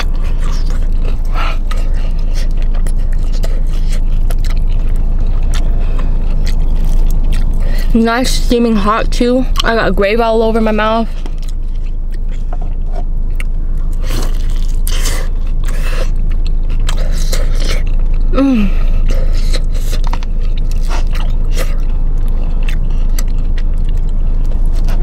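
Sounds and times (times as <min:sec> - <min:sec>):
wet chewing: 0:00.0 - 0:25.0
crisp crunching of fried coating: 0:13.2 - 0:18.3.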